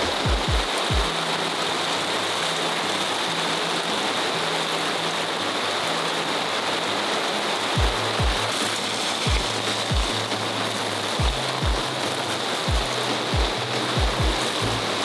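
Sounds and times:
low music beat: 0:00.0 - 0:01.3, 0:07.8 - 0:15.0
heavy rain pouring: 0:00.0 - 0:15.0.

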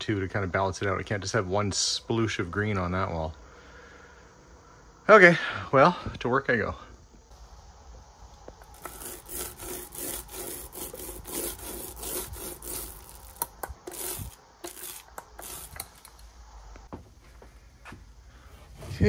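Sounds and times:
paint roller rolling: 0:08.6 - 0:16.1.

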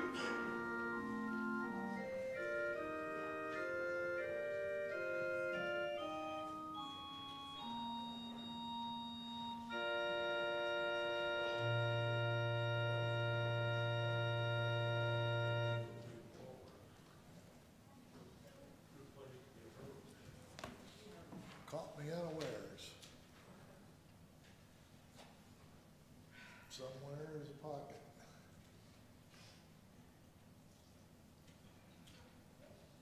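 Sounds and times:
church organ chords: 0:00.0 - 0:16.3
low organ pedal note: 0:00.0 - 0:16.3.

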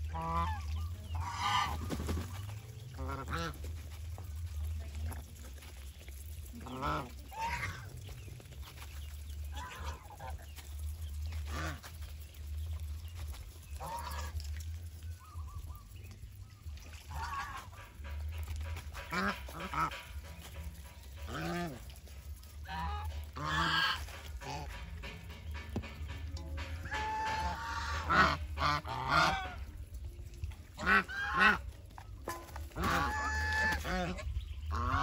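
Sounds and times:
geese honking: 0:00.0 - 0:02.1, 0:02.8 - 0:04.1, 0:06.3 - 0:12.2, 0:13.7 - 0:14.5, 0:16.8 - 0:29.8, 0:30.7 - 0:35.0
steady low hum: 0:00.0 - 0:35.0.

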